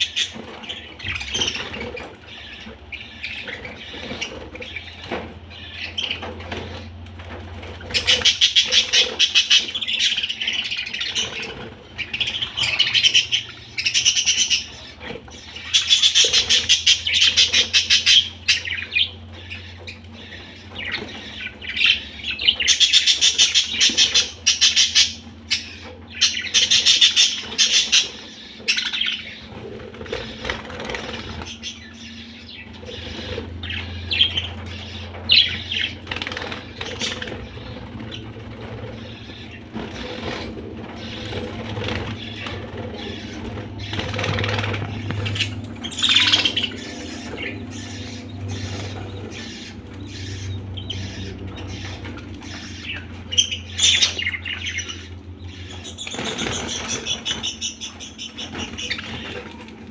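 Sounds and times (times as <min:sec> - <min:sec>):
budgerigars chattering and chirping: 0:00.0 - 0:59.9
wings flapping: 0:00.0 - 0:59.9.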